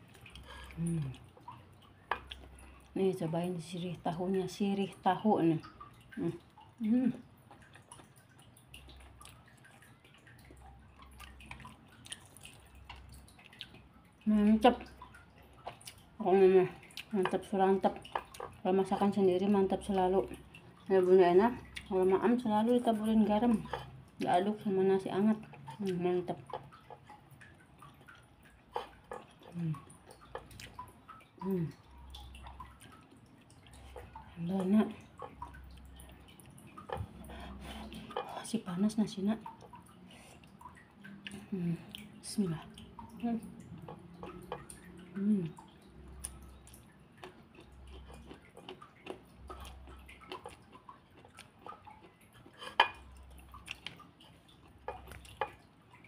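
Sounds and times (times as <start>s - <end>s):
wet chewing and lip-smacking: 0.0s - 3.0s, 5.6s - 14.2s, 14.8s - 16.2s, 16.8s - 19.0s, 25.4s - 38.4s, 39.4s - 56.0s
person chewing with lip smacks: 46.2s - 52.8s.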